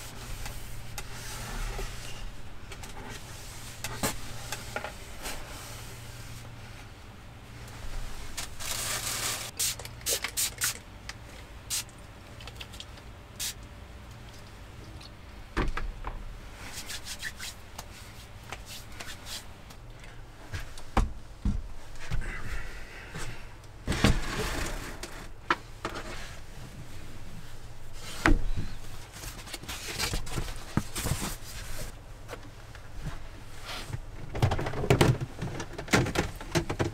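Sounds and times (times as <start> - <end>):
low steady hum: 0.0 - 36.9
foam mat being unfolded: 7.9 - 9.5
plastic bag rustling: 8.1 - 9.6.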